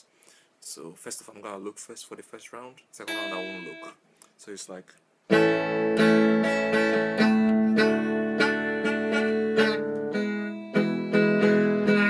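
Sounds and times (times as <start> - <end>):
electric guitar strumming chords: 3.1 - 3.9, 5.3 - 12.0.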